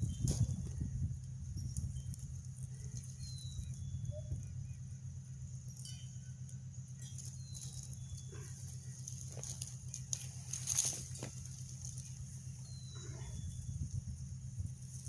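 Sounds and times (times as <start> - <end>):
wind rumbling on microphone: 0.0 - 5.8, 7.9 - 15.0
faint rustling: 7.2 - 13.5.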